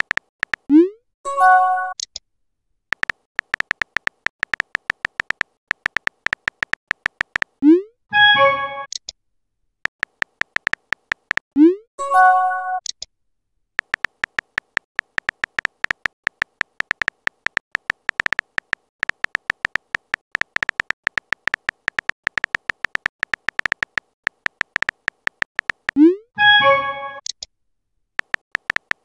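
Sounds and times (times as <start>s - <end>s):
phone keyboard clicks: 0.0s - 0.7s, 2.9s - 7.6s, 9.9s - 11.4s, 13.8s - 26.0s, 28.2s - 29.0s
message sent chime: 8.2s - 8.9s, 26.4s - 27.2s.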